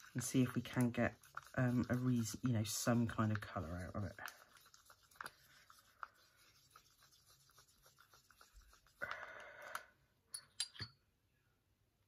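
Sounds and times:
stick scraping plastic cup: 0.0s - 9.1s.

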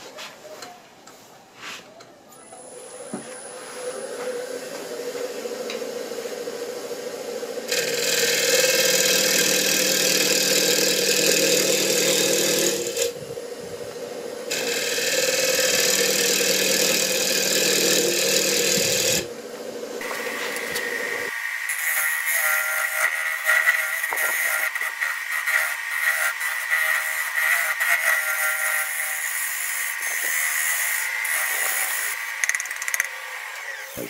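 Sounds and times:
wood lathe humming: 3.1s - 34.0s
turning tool scraping wood: 20.0s - 33.0s.

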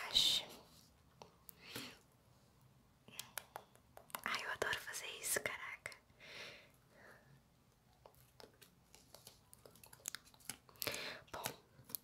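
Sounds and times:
slime squish: 7.9s - 12.0s.

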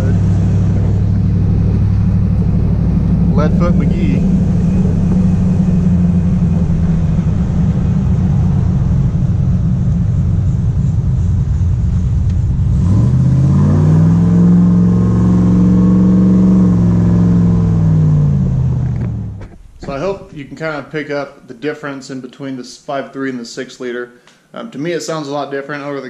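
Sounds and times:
eight-cylinder engine running: 0.0s - 20.2s.

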